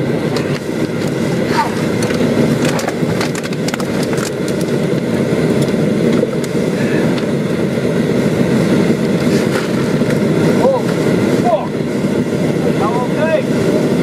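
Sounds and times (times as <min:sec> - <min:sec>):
diesel engine running: 0:00.0 - 0:14.0
sharp clicks and rattles: 0:01.9 - 0:06.6.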